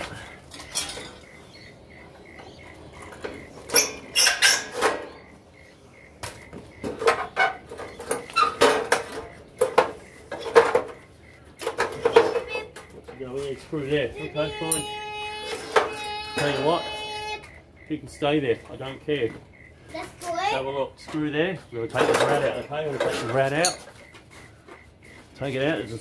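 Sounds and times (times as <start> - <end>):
sheet metal clanking and rattling: 0.1 - 5.3, 6.7 - 13.2, 21.9 - 24.0.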